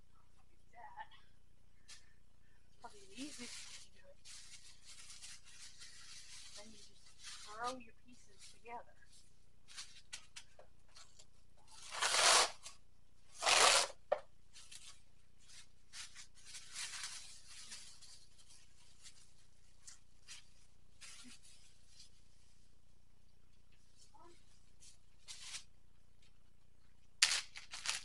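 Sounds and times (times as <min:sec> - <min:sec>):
plastic crinkling: 0:03.1 - 0:12.8, 0:13.4 - 0:22.4, 0:27.2 - 0:28.0
plastic bag ripping: 0:11.8 - 0:12.8, 0:13.4 - 0:14.0, 0:27.2 - 0:28.0.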